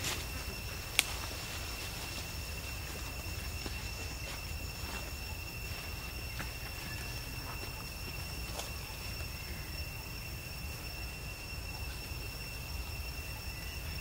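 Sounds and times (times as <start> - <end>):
high-pitched insect drone: 0.0 - 14.0.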